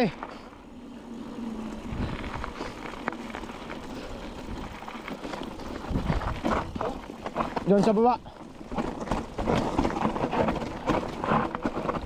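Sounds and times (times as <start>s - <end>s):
footsteps on rocky trail: 0.0s - 12.0s
wind rumbling on microphone: 0.8s - 7.6s.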